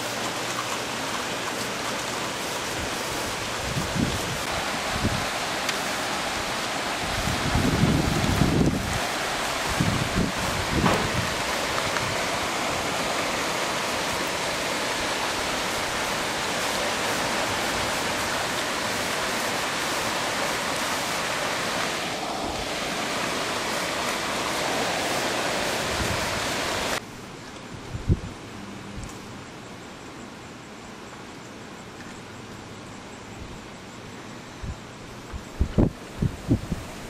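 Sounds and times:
heavy rain pouring: 0.0s - 27.0s
wind gust buffeting microphone: 2.8s - 5.6s, 6.2s - 13.0s, 22.0s - 27.0s, 34.7s - 37.0s.

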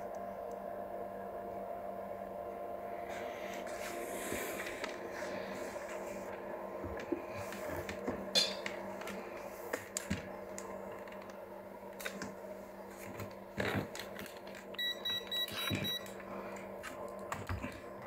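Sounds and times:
low electrical hum: 0.0s - 18.0s
multimeter beeping: 14.8s - 16.1s.

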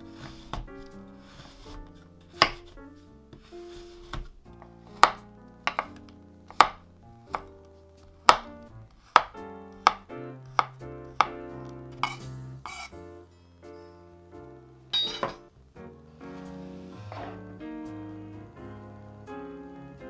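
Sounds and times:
knife chopping chocolate on board: 0.2s - 7.5s, 8.2s - 11.4s, 12.0s - 12.9s.

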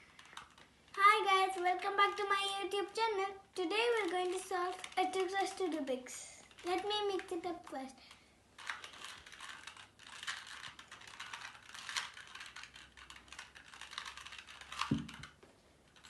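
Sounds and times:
plastic puzzle cube clicking: 0.1s - 0.7s, 3.9s - 5.9s, 8.1s - 16.0s.

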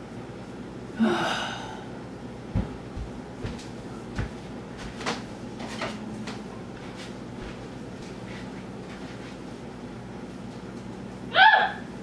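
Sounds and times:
faint steady hum: 0.0s - 12.0s
dull thumps: 2.5s - 4.4s.

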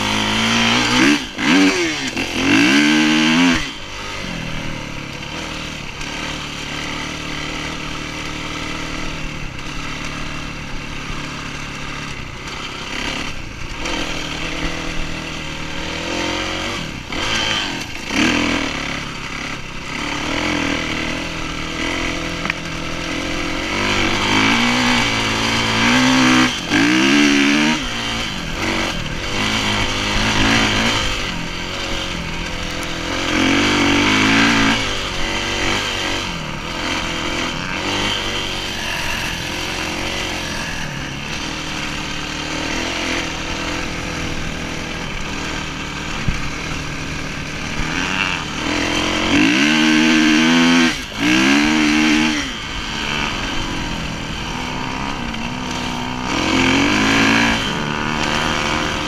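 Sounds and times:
dirt bike engine revving: 0.0s - 59.0s.

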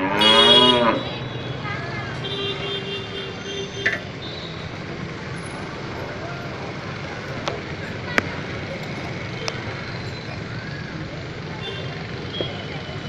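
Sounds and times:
cow mooing: 0.0s - 1.2s
street background: 0.0s - 13.0s.

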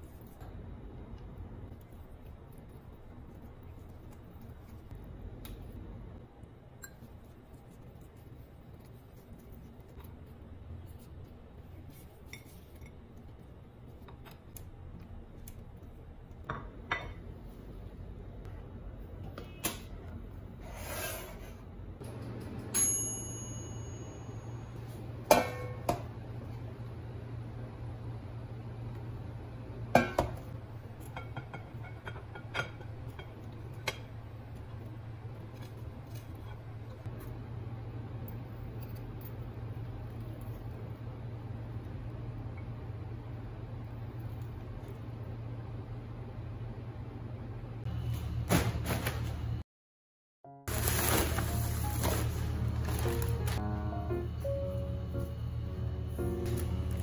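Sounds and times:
low steady hum: 0.0s - 49.6s, 50.7s - 57.0s
low hum: 50.7s - 57.0s.

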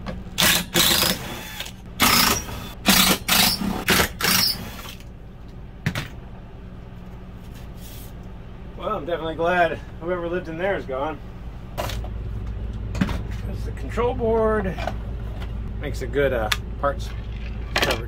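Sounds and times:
power driver whirring: 0.4s - 5.0s.

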